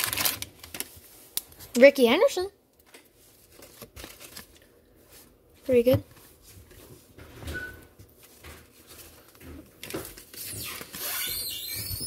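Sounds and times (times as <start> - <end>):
paper wrapper crinkling: 0.0 - 1.8, 2.8 - 5.3, 8.2 - 12.0.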